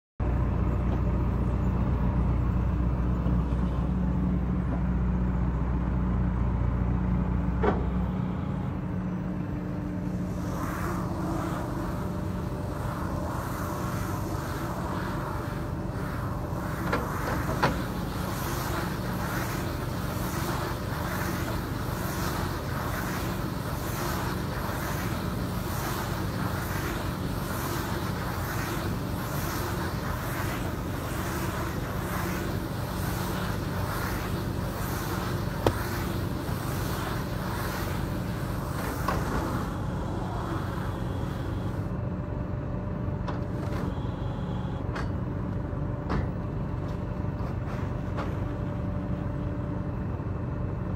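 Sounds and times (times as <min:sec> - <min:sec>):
machine humming: 0:08.0 - 0:42.0
plastic film swishing: 0:10.0 - 0:41.8.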